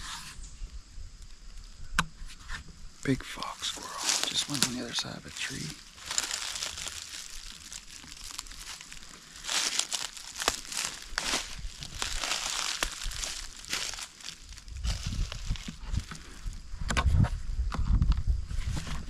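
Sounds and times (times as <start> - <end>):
sharp crackles: 3.0 - 16.6
footsteps crunching dry leaves: 3.4 - 16.6.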